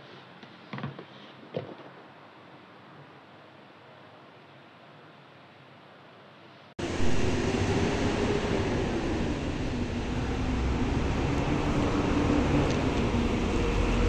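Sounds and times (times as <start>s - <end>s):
traffic rumble: 6.8s - 14.0s.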